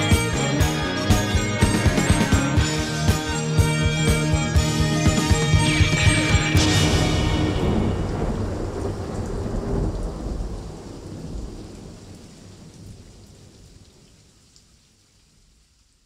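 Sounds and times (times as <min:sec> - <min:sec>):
heavy rain hissing: 0:00.0 - 0:13.5
thunder rumbling: 0:05.2 - 0:13.5.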